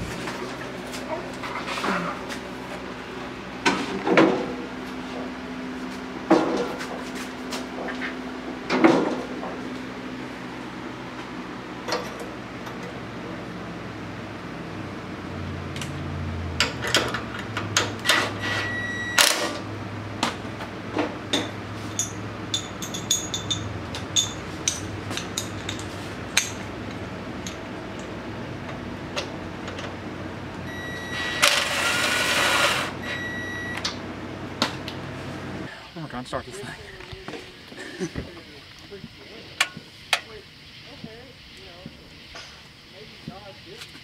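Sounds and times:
cordless drill whirring: 0:30.8 - 0:33.4.

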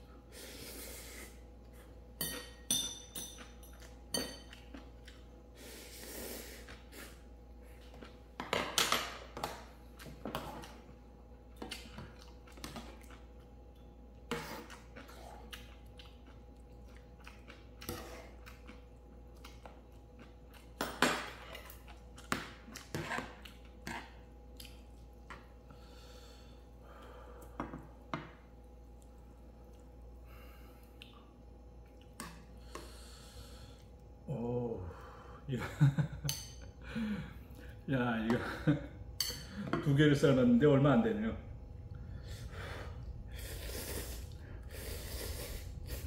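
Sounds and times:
faint steady hum: 0:00.0 - 0:46.0
pots and utensils clinking: 0:02.2 - 0:04.6.

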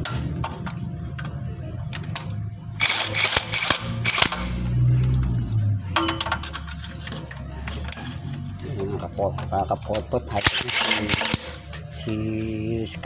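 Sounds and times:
low steady hum: 0:00.0 - 0:13.0
ringing metal: 0:06.0 - 0:06.6
metallic cracks and rattling: 0:09.4 - 0:12.2.

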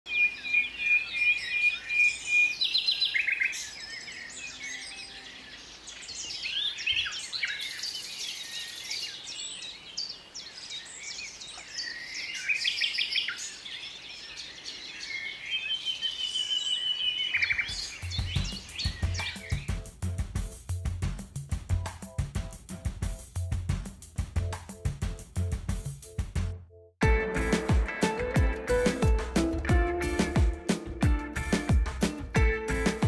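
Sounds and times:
songbirds chirping and trilling: 0:00.1 - 0:20.6.

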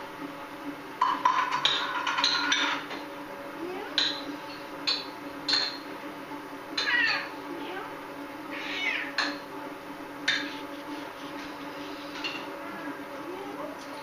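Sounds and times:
dishes and utensils clinking: 0:01.0 - 0:03.0, 0:04.0 - 0:05.9, 0:12.1 - 0:12.5.

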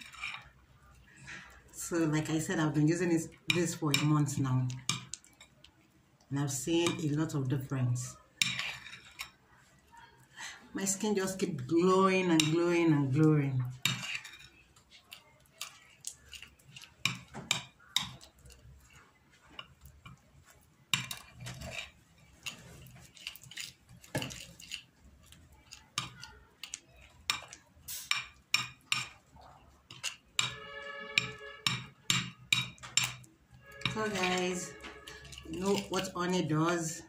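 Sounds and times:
metal spoon scraping a plate: 0:00.0 - 0:02.7, 0:08.4 - 0:09.4, 0:13.7 - 0:29.2, 0:29.9 - 0:37.0.

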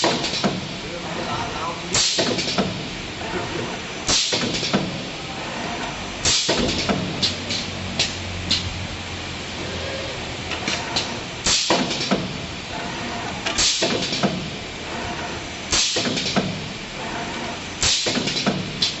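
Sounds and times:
machine clattering hissing bursts: 0:00.0 - 0:19.0
steady background noise: 0:00.0 - 0:19.0.

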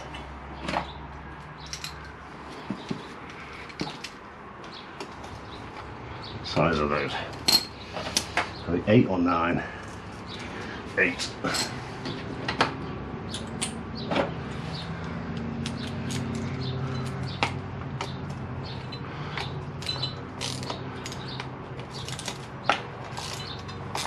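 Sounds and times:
metal tools clinking: 0:00.1 - 0:02.2, 0:07.2 - 0:08.4, 0:11.1 - 0:11.9, 0:15.7 - 0:24.0.

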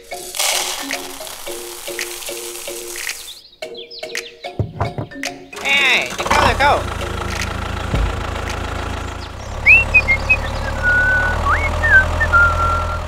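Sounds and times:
toy tractor engine running: 0:00.0 - 0:03.4, 0:05.6 - 0:13.0
bird-like whistled calls: 0:09.4 - 0:13.0.

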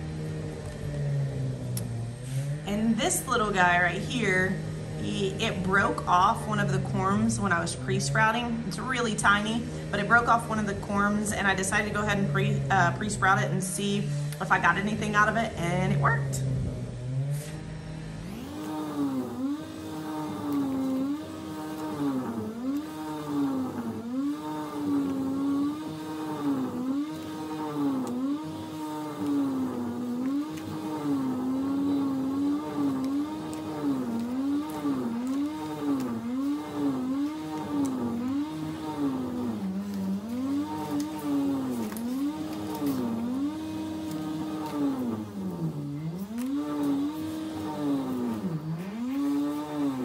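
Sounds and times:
machinery engine running: 0:00.0 - 0:50.0.

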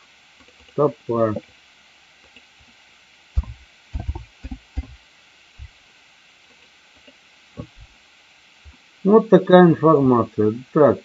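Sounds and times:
keyboard taps: 0:03.4 - 0:05.0.

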